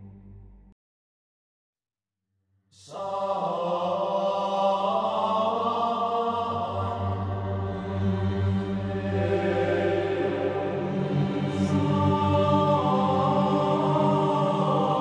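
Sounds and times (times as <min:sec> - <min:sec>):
choral chant singing: 0:02.8 - 0:15.0
low steady drone: 0:06.6 - 0:15.0.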